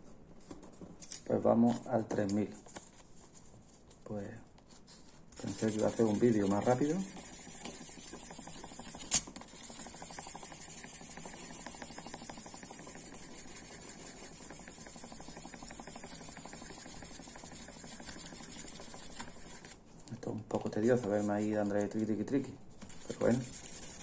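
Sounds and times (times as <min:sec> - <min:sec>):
sandpaper scratching plastic: 0:05.4 - 0:19.8, 0:20.8 - 0:22.1, 0:22.9 - 0:24.0.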